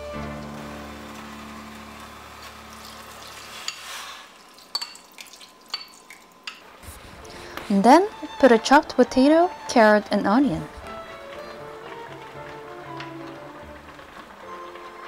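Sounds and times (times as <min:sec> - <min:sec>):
background music: 0:00.0 - 0:03.6, 0:06.8 - 0:15.0
food sizzling in a pot: 0:00.0 - 0:15.0.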